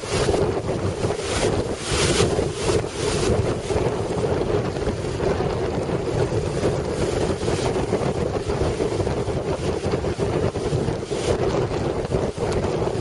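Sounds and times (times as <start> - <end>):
waves breaking on pebbles: 0.0 - 4.2
wind buffeting microphone: 0.0 - 13.0.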